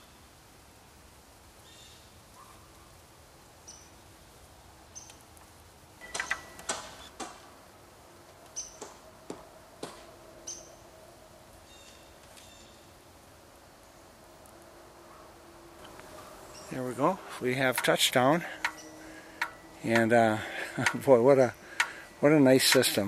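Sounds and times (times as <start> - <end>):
winch metallic clicks and knocks: 17.6 - 20.1, 20.7 - 23.0.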